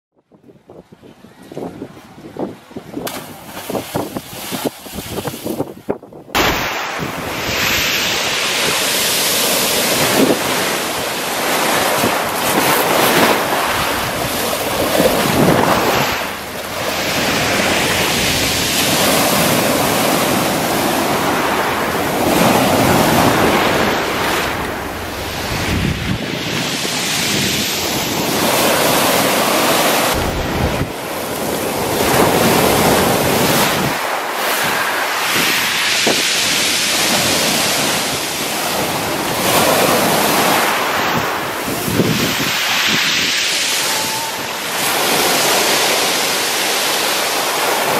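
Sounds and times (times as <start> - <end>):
wind buffeting microphone: 0.2 - 47.9
surf breaking on pebble beach: 6.3 - 47.9.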